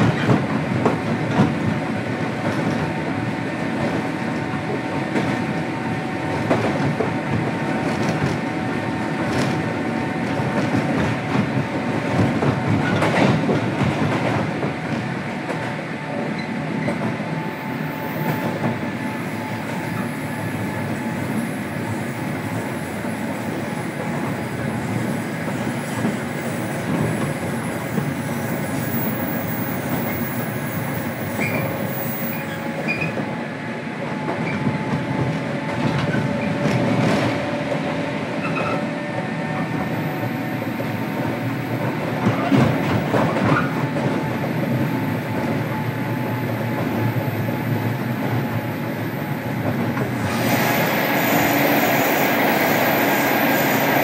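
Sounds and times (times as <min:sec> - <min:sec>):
electric train running noise: 0:17.4 - 0:54.0.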